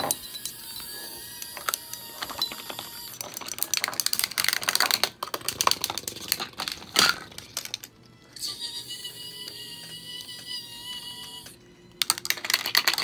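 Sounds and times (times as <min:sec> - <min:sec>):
small plastic objects clattering: 0:00.0 - 0:08.0, 0:12.0 - 0:13.0.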